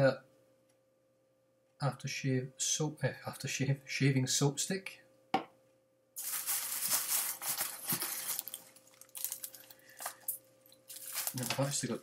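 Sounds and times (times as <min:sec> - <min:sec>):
packaging rustling and crinkling: 0:06.2 - 0:12.0.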